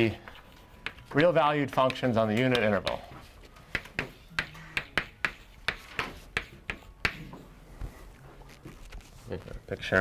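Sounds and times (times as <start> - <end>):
chalk tapping on blackboard: 0.4 - 1.1, 1.7 - 7.5.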